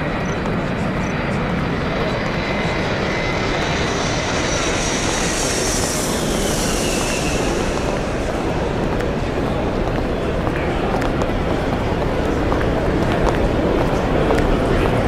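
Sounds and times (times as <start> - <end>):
engine roar: 0.1 - 15.0
faint high whine: 0.2 - 11.0.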